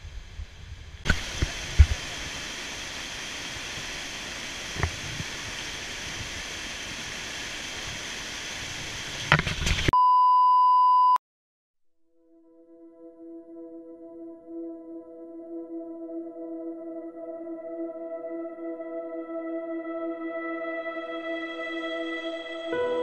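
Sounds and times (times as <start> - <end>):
water cascading over rocks: 1.0 - 9.9.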